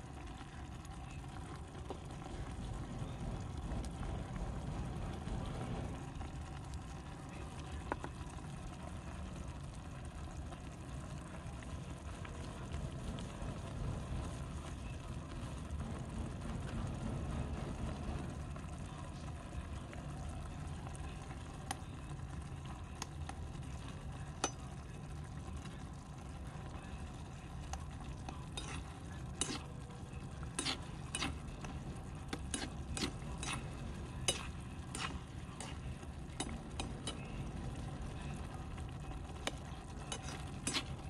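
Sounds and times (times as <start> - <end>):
broth bubbling: 0.0 - 41.0
low rumble: 0.8 - 21.7.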